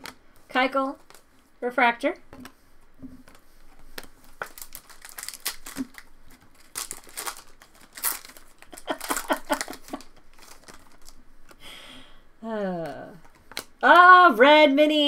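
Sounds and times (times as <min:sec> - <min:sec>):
foil wrapper tearing and crinkling: 0:04.0 - 0:11.6.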